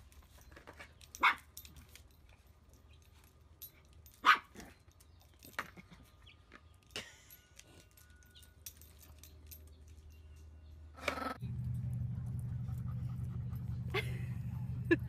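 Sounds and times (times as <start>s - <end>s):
small dog barking: 1.2s - 1.5s, 4.2s - 4.6s.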